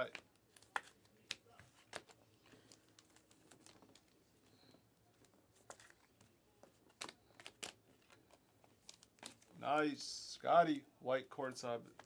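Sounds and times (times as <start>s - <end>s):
trading cards rustling and clicking: 0.0s - 9.6s.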